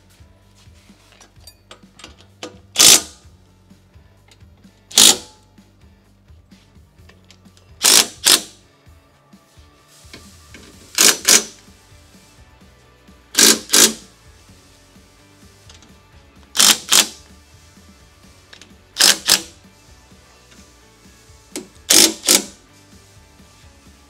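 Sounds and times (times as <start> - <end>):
impact driver hammering: 2.8 - 3.2, 4.9 - 5.4, 7.8 - 8.6, 11.0 - 11.6, 13.4 - 14.0, 16.6 - 17.2, 21.6 - 22.6.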